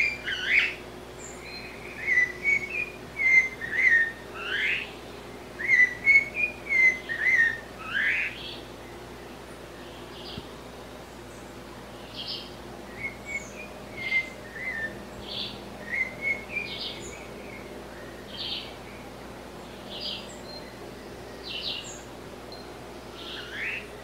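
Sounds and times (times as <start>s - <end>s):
parrot high calls: 1.9s - 4.9s, 5.6s - 8.4s.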